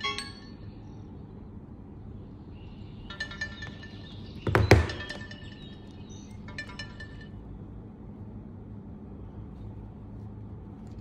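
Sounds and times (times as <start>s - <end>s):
phone knocking on wooden table: 4.4s - 5.2s.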